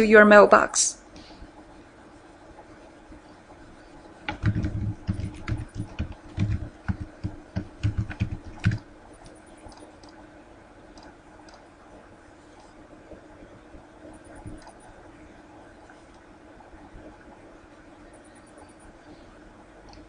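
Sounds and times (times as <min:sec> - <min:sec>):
computer keyboard typing: 0:04.2 - 0:10.2, 0:14.1 - 0:14.9.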